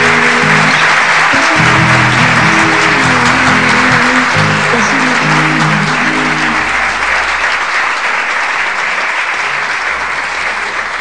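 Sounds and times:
audience applauding: 0:00.0 - 0:11.0
live music held notes: 0:00.0 - 0:11.0.

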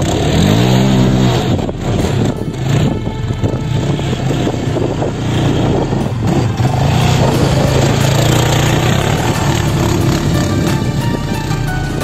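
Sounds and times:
quad bike engine running: 0:00.0 - 0:12.0
wheels digging in sand: 0:00.0 - 0:12.0.

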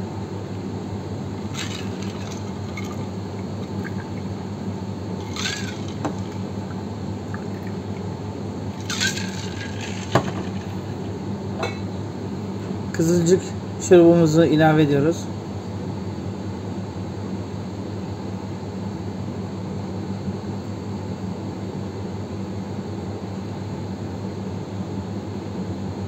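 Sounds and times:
steady low hum: 0:00.0 - 0:19.1
liquid pouring swishes: 0:01.4 - 0:04.3, 0:05.2 - 0:08.0.

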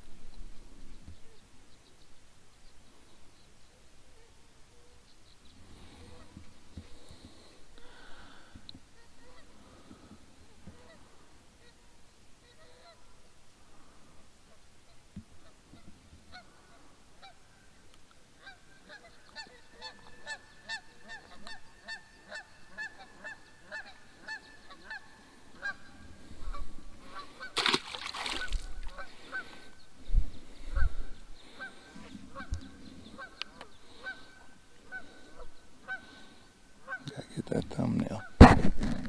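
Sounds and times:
geese honking: 0:09.0 - 0:10.1, 0:10.7 - 0:13.3, 0:14.5 - 0:17.8, 0:18.4 - 0:29.8, 0:30.6 - 0:37.4.

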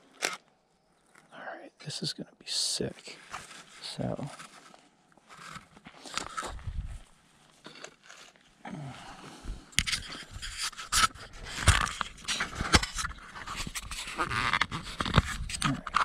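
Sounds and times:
footsteps on rocky dirt trail: 0:05.7 - 0:08.2.

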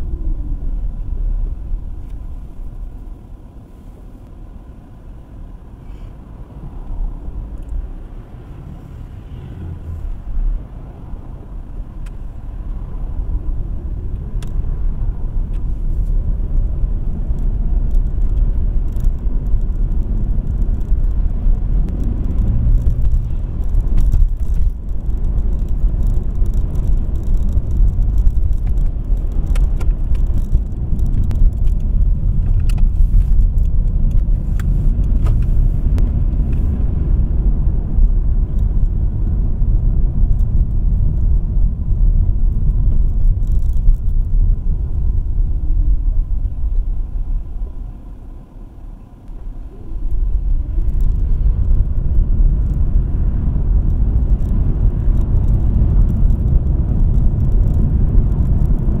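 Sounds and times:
car road and engine rumble: 0:00.0 - 0:59.0
light ticks: 0:12.0 - 0:12.2, 0:17.1 - 0:36.8, 0:50.0 - 0:59.0.

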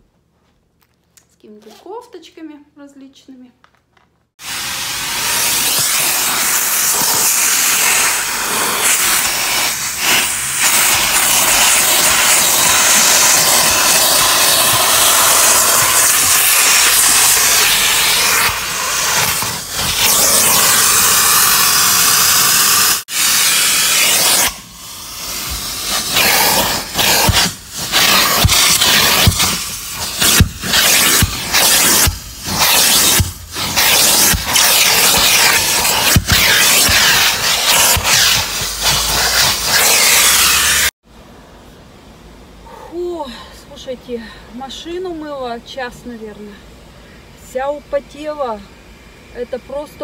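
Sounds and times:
vacuum cleaner sucking: 0:04.4 - 0:41.0.

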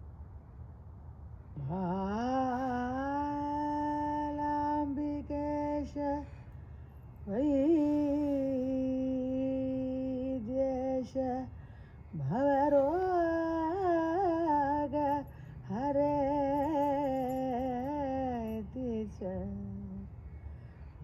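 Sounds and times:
person singing unaccompanied: 0:01.6 - 0:06.6, 0:07.2 - 0:20.2.

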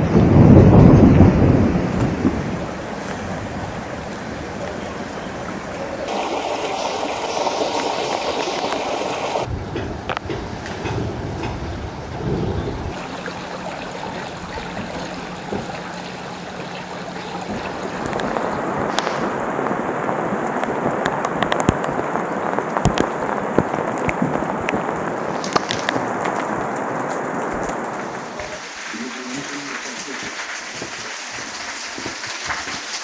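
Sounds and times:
steady rain falling: 0:00.0 - 0:33.0.

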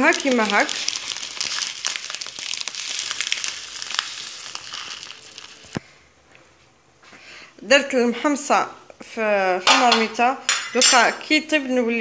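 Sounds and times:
pot bubbling and sizzling: 0:00.0 - 0:05.8.

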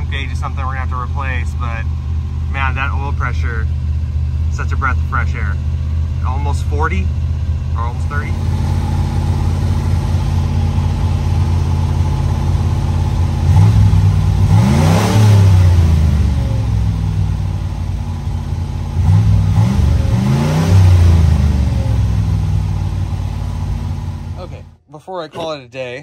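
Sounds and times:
car engine idling and revving: 0:00.0 - 0:25.5.

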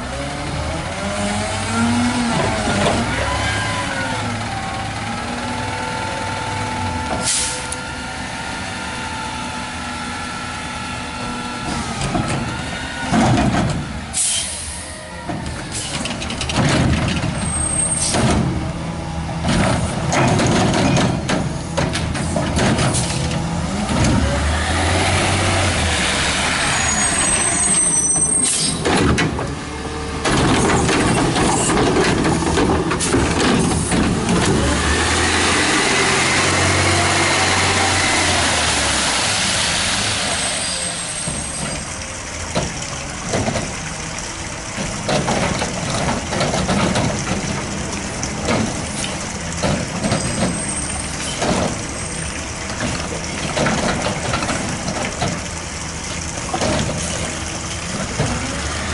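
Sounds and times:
garbage truck driving past: 0:00.0 - 0:58.9
knocks and clatter: 0:13.1 - 0:13.8, 0:15.3 - 0:18.7, 0:19.4 - 0:24.3, 0:28.8 - 0:29.6, 0:30.2 - 0:34.8, 0:41.3 - 0:58.6
air brake hisses: 0:14.2 - 0:15.0.

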